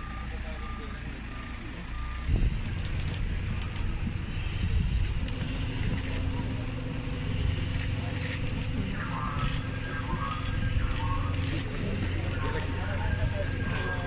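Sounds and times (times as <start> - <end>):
fire engine idling: 0.0 - 14.0
faint voices: 5.9 - 14.0.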